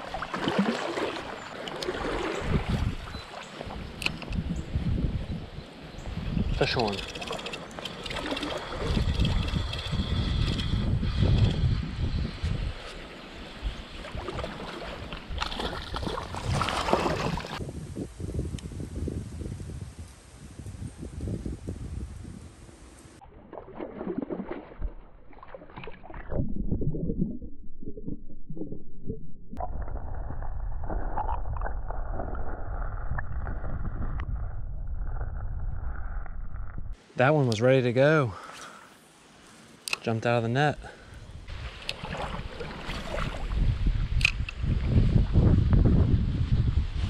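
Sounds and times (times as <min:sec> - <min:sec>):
water gurgles: 0:00.0 - 0:03.8, 0:23.2 - 0:34.2
wind rumble on microphone: 0:02.0 - 0:23.2, 0:29.6 - 0:37.0, 0:41.1 - 0:47.0
fish thrashing in water: 0:14.0 - 0:17.6, 0:23.2 - 0:26.7
muffled underwater creek rumble: 0:23.2 - 0:37.0
sharp click: 0:44.2 - 0:44.6.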